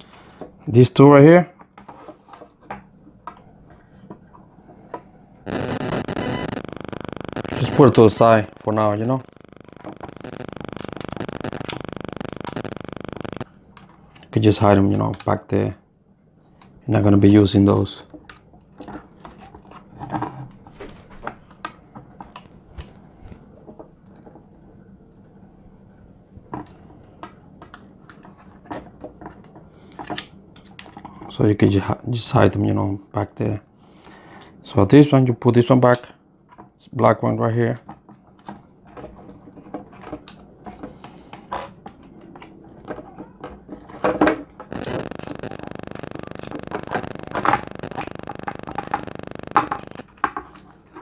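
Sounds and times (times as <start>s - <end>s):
fingers clicking on plastic controller: 5.5s - 13.4s, 44.7s - 50.1s.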